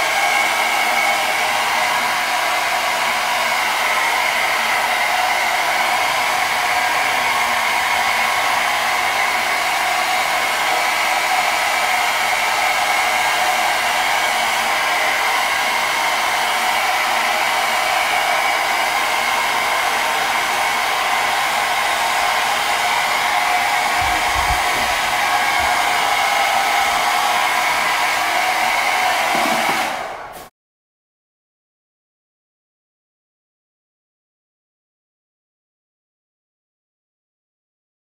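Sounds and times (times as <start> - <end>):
hair dryer running: 0.0 - 30.5.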